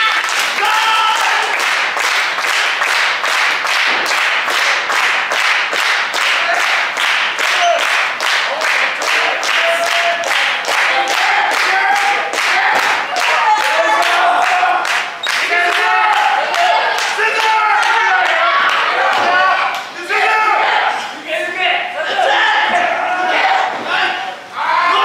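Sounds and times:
audience clapping in unison: 0:00.0 - 0:19.9.

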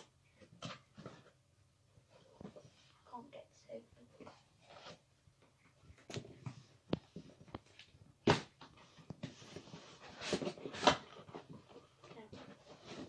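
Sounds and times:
cardboard rustling scrape: 0:04.2 - 0:05.1, 0:08.4 - 0:13.0.

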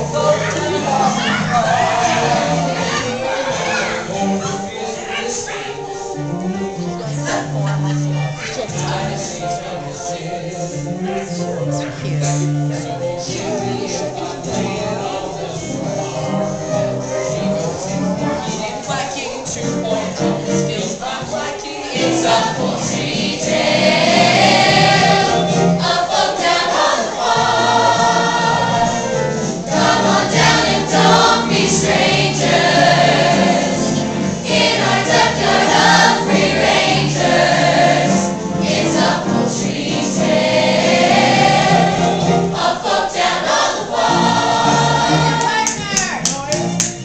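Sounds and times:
young voices singing chorus: 0:00.0 - 0:45.8.

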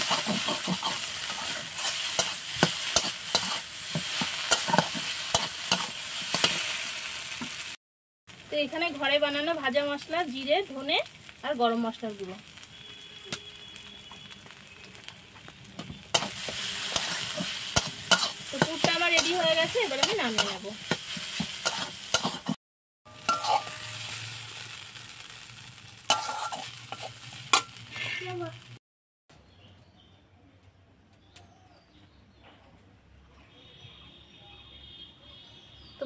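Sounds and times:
spatula scraping a pan: 0:00.0 - 0:06.8, 0:15.8 - 0:24.7, 0:26.1 - 0:28.4
frying hiss: 0:00.0 - 0:28.8.

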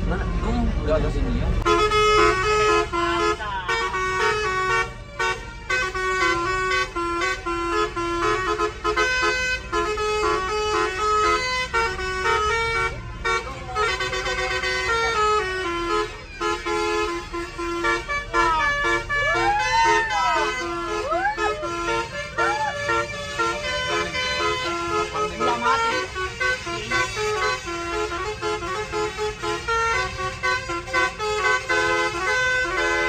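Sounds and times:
low engine rumble: 0:00.0 - 0:33.0
musical air horn tune: 0:01.6 - 0:33.0.

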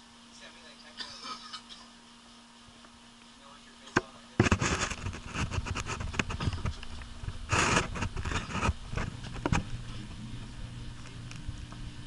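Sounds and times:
camera scraping on wicker: 0:04.4 - 0:10.0.

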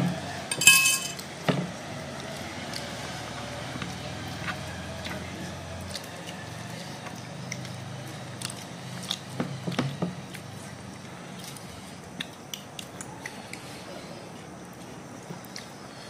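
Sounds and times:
low steady hum: 0:00.0 - 0:01.8
child chewing with mouth smacks: 0:03.8 - 0:16.0.

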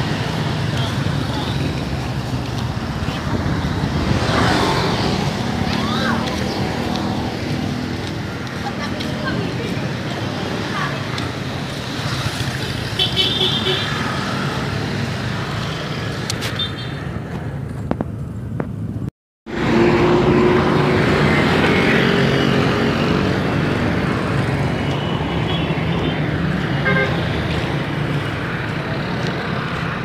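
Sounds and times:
vehicles passing: 0:00.0 - 0:30.0.

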